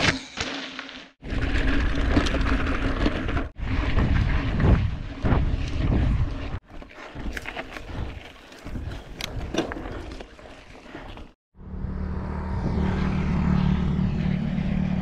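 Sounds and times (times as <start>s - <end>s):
bike tyre noise: 0.0s - 15.0s
wind rumble on microphone: 3.6s - 6.6s.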